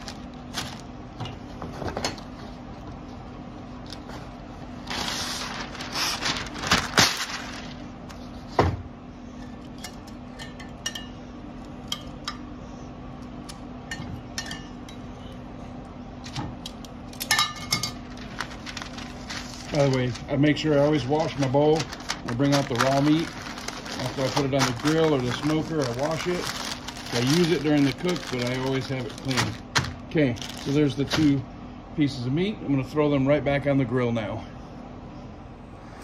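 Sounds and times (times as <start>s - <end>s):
paper rustling: 4.8s - 8.3s, 18.0s - 31.3s.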